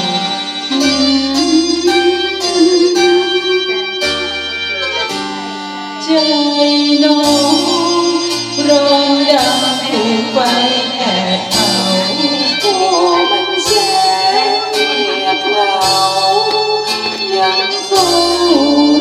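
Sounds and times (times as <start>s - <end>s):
woman singing into microphone: 0.0s - 4.5s, 6.0s - 19.0s
instrumental backing music: 0.0s - 19.0s.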